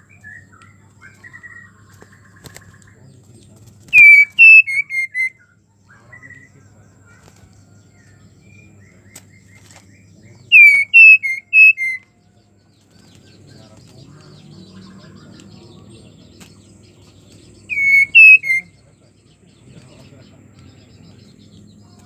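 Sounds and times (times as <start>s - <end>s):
bird whistling: 3.9s - 5.6s, 10.5s - 12.1s, 17.6s - 18.8s.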